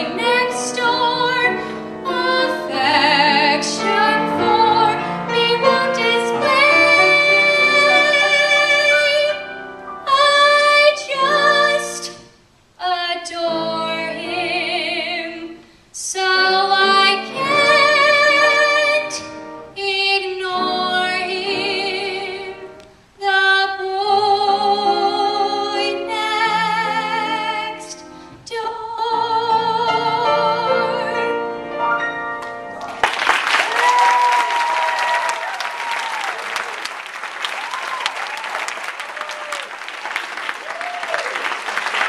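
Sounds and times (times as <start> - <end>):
woman singing: 0.0 - 9.4, 10.0 - 31.4
audience applause: 32.8 - 42.0.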